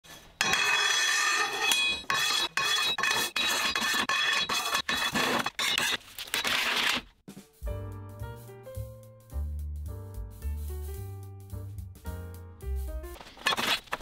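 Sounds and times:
steel bars clattering on workbench: 0.4s - 7.0s.

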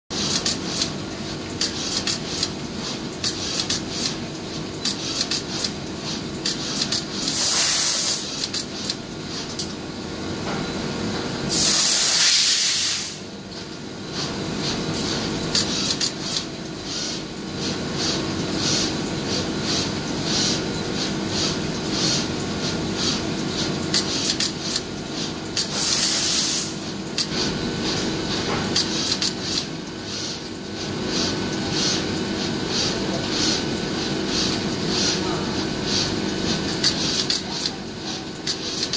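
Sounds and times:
loud hissing bursts: 7.3s - 8.4s, 11.5s - 13.3s, 25.7s - 26.8s.

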